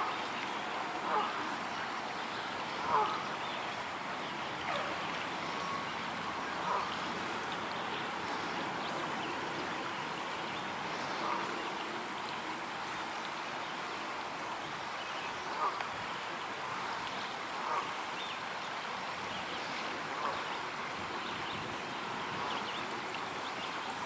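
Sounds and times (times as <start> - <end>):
river water over rocks: 0.0 - 24.0
geese calling: 1.0 - 1.5, 2.8 - 3.3.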